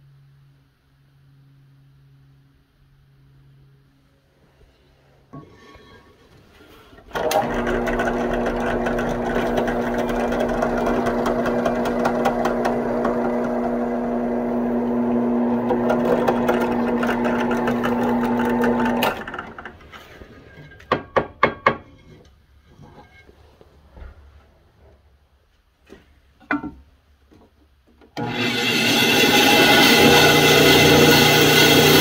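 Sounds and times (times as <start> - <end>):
drill press boring through steel: 7.1 - 19.4, 28.2 - 32.0.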